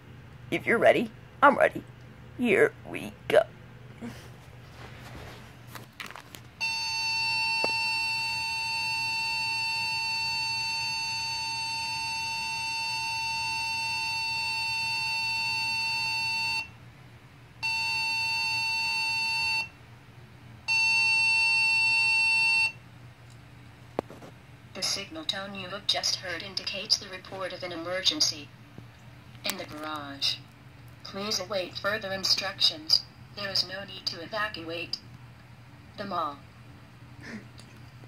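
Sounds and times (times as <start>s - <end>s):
electronic alarm tone: 6.6s - 16.7s, 17.6s - 19.7s, 20.7s - 22.8s.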